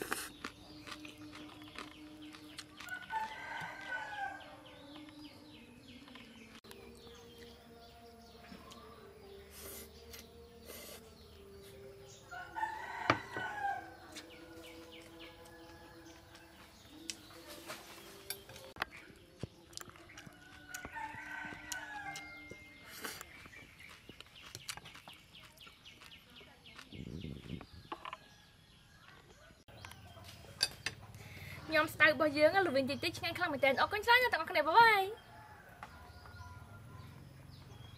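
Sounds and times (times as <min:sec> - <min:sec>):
rooster crowing: 0:02.9 - 0:04.8, 0:12.2 - 0:14.1, 0:20.2 - 0:22.6, 0:35.2 - 0:37.3.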